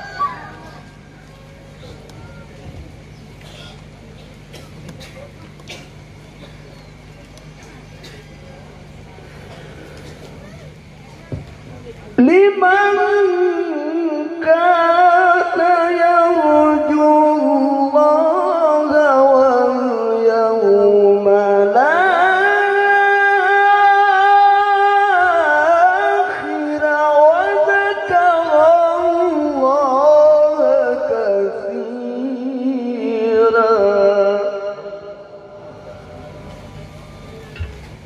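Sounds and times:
man chanting into a microphone: 0:12.2 - 0:35.4.

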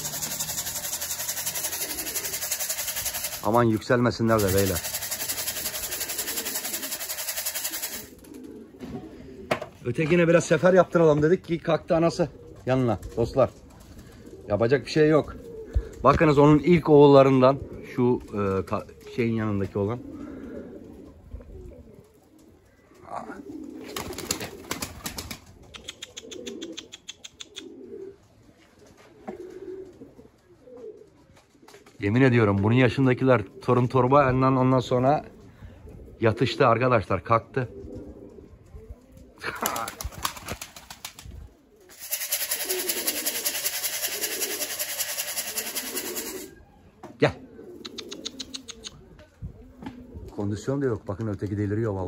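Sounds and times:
fast even rattle: 0:00.0 - 0:08.2, 0:41.9 - 0:46.5
clattering flurry of wings: 0:00.0 - 0:08.5, 0:23.7 - 0:25.9, 0:39.2 - 0:46.5
pigeons cooing: 0:00.0 - 0:32.0, 0:33.0 - 0:50.4.

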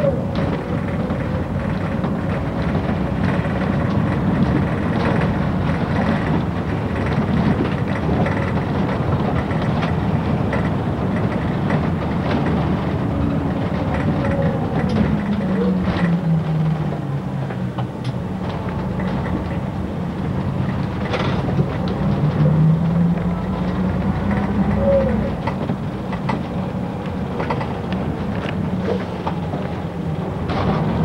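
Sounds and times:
bus engine drone: 0:00.0 - 0:31.0
road rumble: 0:00.0 - 0:31.0.

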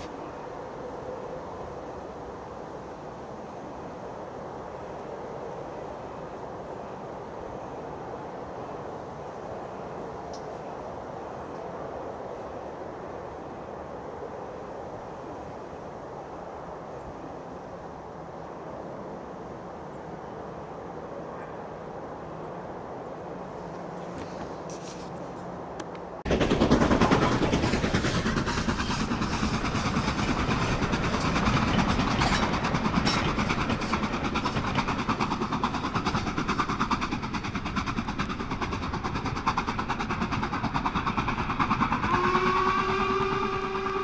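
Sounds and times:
faint outdoor background: 0:00.0 - 0:26.7
train rattling past at speed: 0:00.0 - 0:44.0
train whistle: 0:42.0 - 0:44.0.

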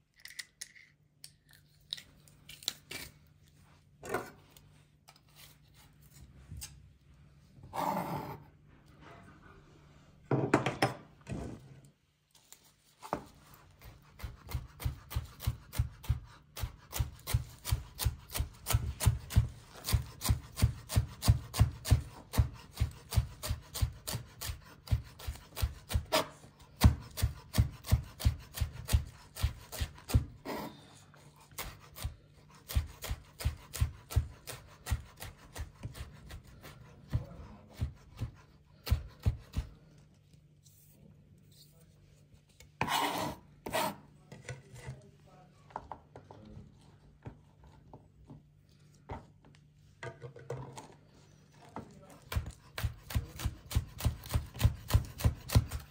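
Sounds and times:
knife chopping herbs on board: 0:13.0 - 0:30.7, 0:31.4 - 0:39.8, 0:52.0 - 0:55.9.

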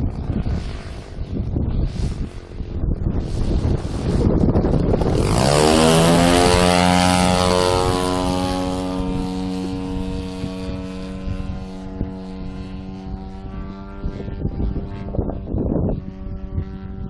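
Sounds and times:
model aeroplane engine drone: 0:00.0 - 0:17.0.

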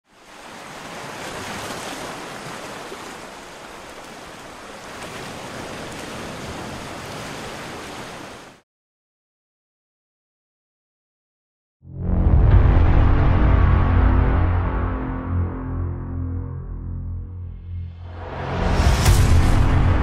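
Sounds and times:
sea water sloshing and splashing: 0:00.0 - 0:08.6.

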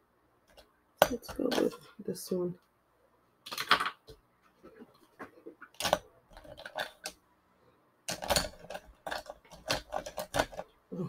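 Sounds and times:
plastic markers clicking on table: 0:08.1 - 0:10.7.

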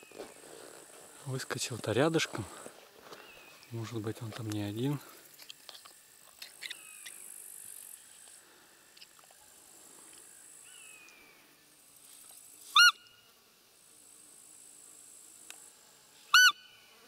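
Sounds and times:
insects buzzing: 0:00.0 - 0:17.0
deer call squeak: 0:12.7 - 0:13.1, 0:16.3 - 0:16.8
faint bird calls: 0:12.7 - 0:13.3, 0:16.2 - 0:17.0.

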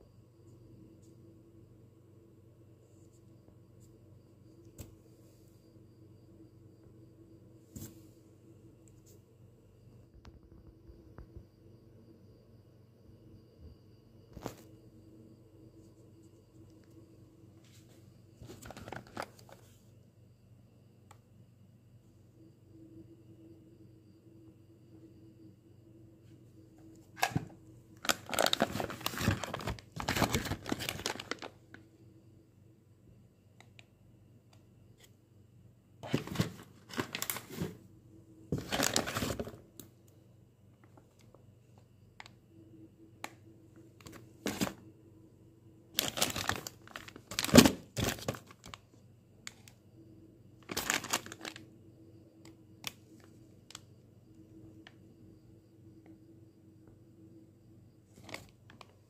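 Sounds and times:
plastic bags crinkling: 0:18.5 - 0:19.6, 0:27.2 - 0:31.6, 0:36.0 - 0:37.7, 0:38.6 - 0:39.6, 0:46.0 - 0:48.8, 0:50.6 - 0:51.6.

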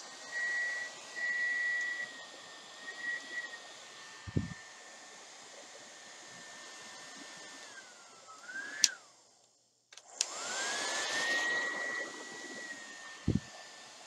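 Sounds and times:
hair dryer whine and air rush: 0:00.0 - 0:14.0.

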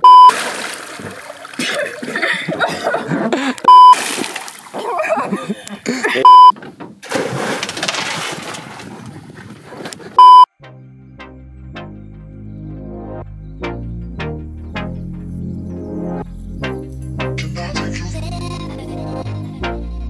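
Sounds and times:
loud electronic beeps: 0:00.0 - 0:00.3, 0:03.7 - 0:04.0, 0:06.3 - 0:06.5, 0:10.2 - 0:10.5
water splashing: 0:00.0 - 0:03.1, 0:03.7 - 0:05.4, 0:07.0 - 0:09.8
music: 0:10.5 - 0:20.0.

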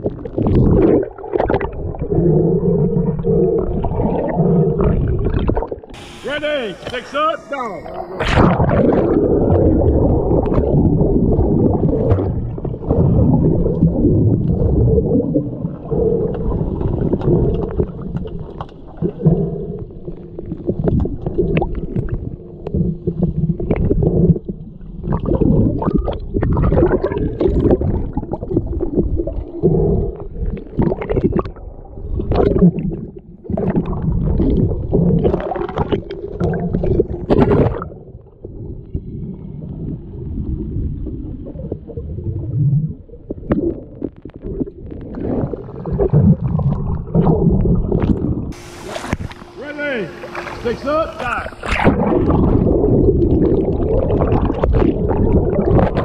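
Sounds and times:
underwater churning rumble: 0:00.0 - 0:56.0
sharp clacks underwater: 0:11.6 - 0:39.0, 0:43.2 - 0:49.5, 0:51.6 - 0:56.0.

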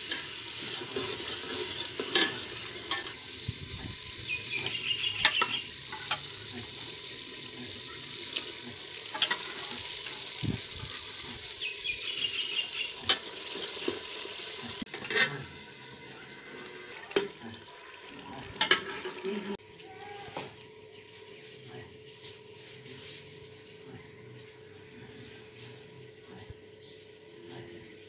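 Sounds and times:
curry bubbling and sizzling in pot: 0:00.0 - 0:19.6.

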